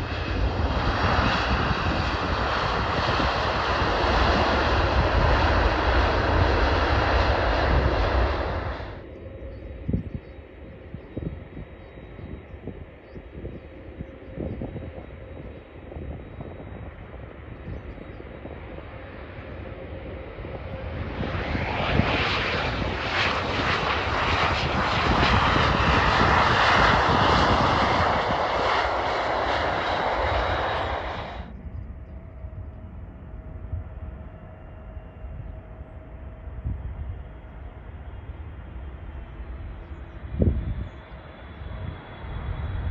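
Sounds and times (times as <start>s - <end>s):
jet approaching to land: 0.0s - 42.9s
jet engines on takeoff roll: 0.0s - 42.9s
faint steady whine: 5.2s - 22.7s.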